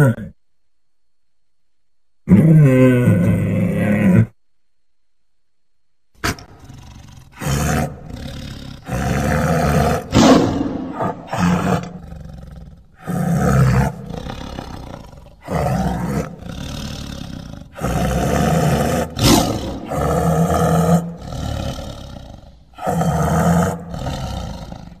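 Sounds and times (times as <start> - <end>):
tiger roaring: 2.3 - 4.4, 6.2 - 25.0
tiger growling: 6.2 - 25.0.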